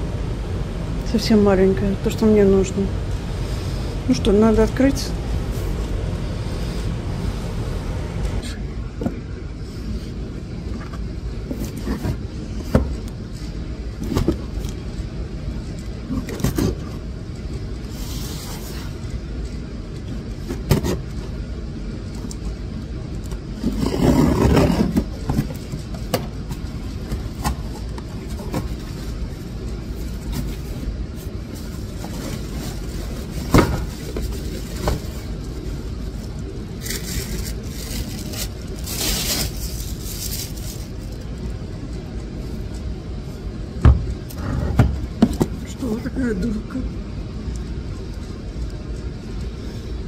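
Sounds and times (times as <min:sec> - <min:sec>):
steady low rumble: 0:00.0 - 0:50.0
cardboard rustling: 0:23.6 - 0:41.2.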